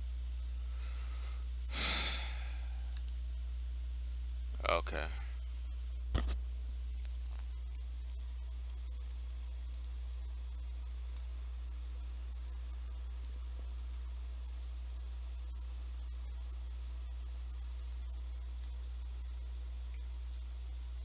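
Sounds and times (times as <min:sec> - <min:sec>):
low electrical hum: 0:00.0 - 0:21.0
stylus scratching on tablet: 0:07.5 - 0:21.0.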